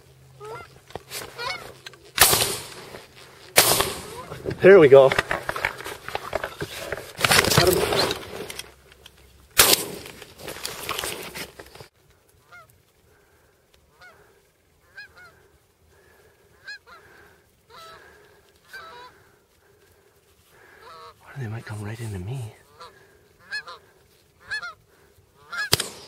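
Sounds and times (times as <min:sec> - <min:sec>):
goose honks: 0:00.4 - 0:01.8, 0:12.4 - 0:12.7, 0:13.9 - 0:15.5, 0:16.6 - 0:19.3, 0:20.6 - 0:21.2, 0:22.6 - 0:24.8, 0:25.4 - 0:25.7
shotgun shots: 0:02.2 - 0:02.9, 0:03.5 - 0:05.5, 0:09.6 - 0:10.2, 0:25.6 - 0:26.0.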